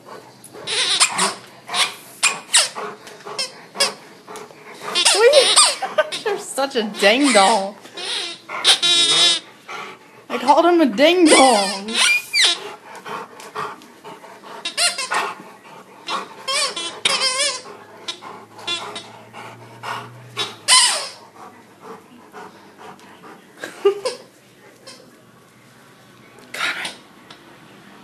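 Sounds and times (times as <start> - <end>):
dog chewing on toy: 0.0 - 25.1
rubber squeaky toy squealing: 0.7 - 2.8, 5.0 - 5.8, 7.0 - 9.5, 11.2 - 12.6, 14.6 - 15.2, 16.1 - 19.1, 20.4 - 21.2.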